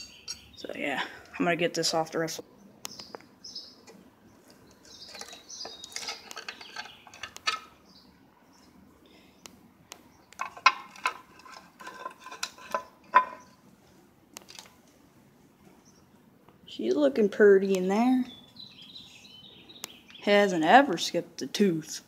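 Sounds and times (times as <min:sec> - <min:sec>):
metal scraping: 0:04.4 - 0:07.8, 0:10.4 - 0:13.6.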